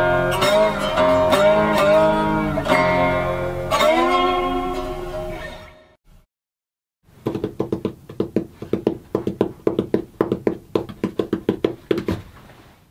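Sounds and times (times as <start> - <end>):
hands drumming on hollow door: 7.2 - 12.3.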